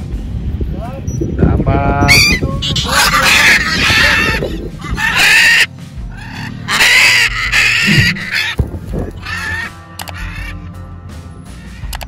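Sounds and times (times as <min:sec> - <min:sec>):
macaw squawking: 0:02.0 - 0:10.7
background music: 0:02.1 - 0:12.0.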